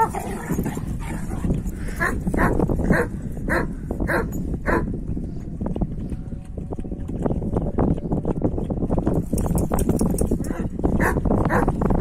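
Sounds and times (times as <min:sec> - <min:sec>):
dog barking: 0:10.5 - 0:11.7.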